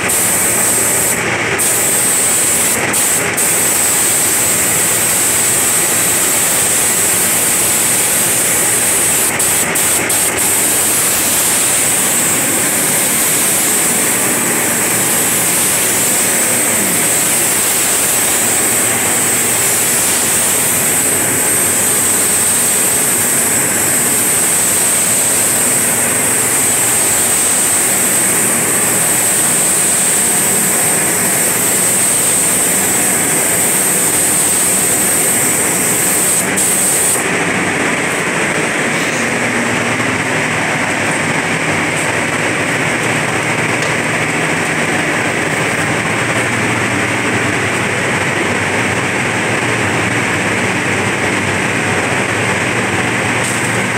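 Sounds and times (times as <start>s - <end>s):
spray gun hissing: 0.0s - 43.0s.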